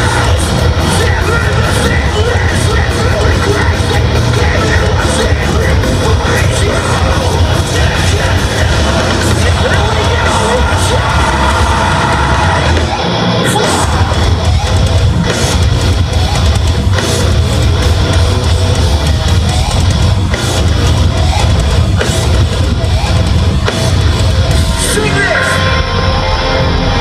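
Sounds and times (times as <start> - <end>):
live metalcore band: 0.0 - 27.0.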